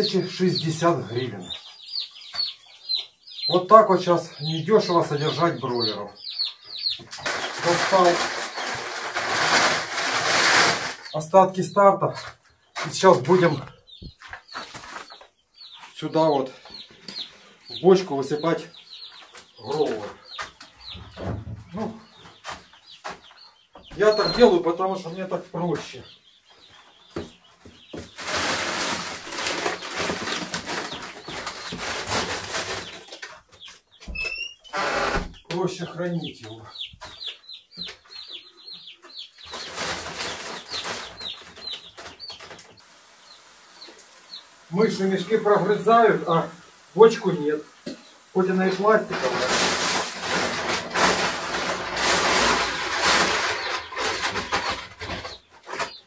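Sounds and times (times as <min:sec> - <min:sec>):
grain feed pouring into barrel: 0:07.3 - 0:11.1, 0:28.2 - 0:30.9, 0:48.3 - 0:54.8.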